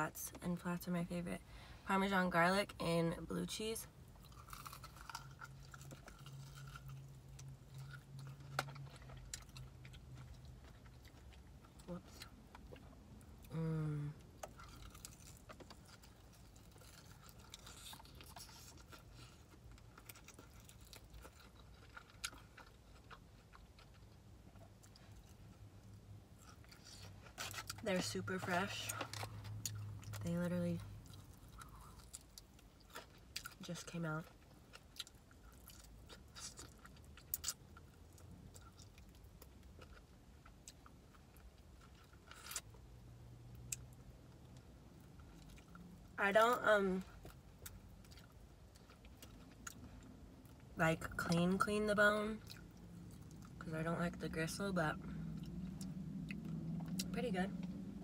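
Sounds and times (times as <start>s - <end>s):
person chewing and lip smacking: 4.2s - 27.8s, 34.3s - 42.7s
chewing chicken wing: 14.3s - 27.8s.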